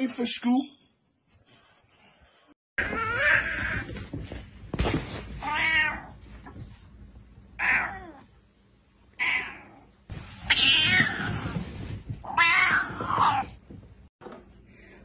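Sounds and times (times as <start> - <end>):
cat yowling angrily: 12.3 - 13.5.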